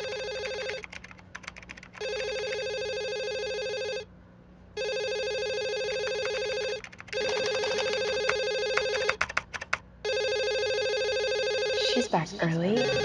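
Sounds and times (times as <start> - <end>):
desk telephone ringing: 0.0 - 0.9, 2.0 - 4.1, 4.8 - 9.2, 10.0 - 12.1, 12.7 - 13.0.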